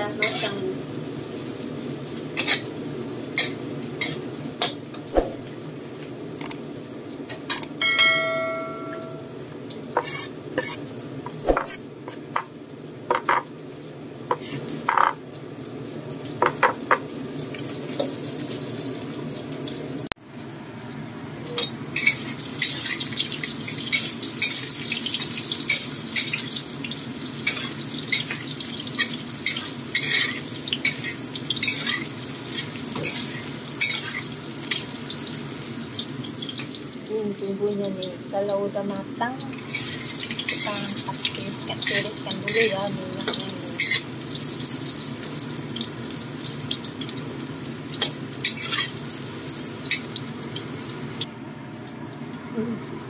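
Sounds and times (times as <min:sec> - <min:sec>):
eggplant sizzling in oil: 0:00.0 - 0:53.0.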